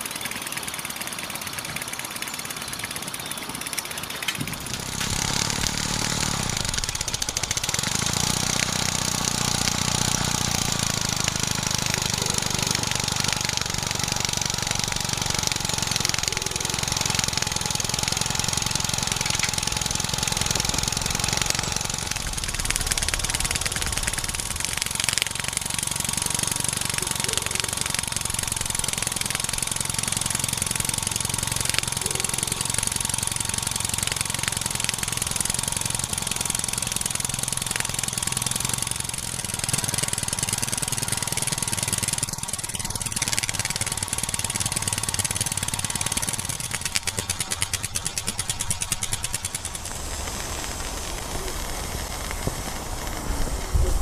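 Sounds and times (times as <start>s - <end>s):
steam engine running: 0.0s - 54.0s
hiss of steam: 49.6s - 54.0s.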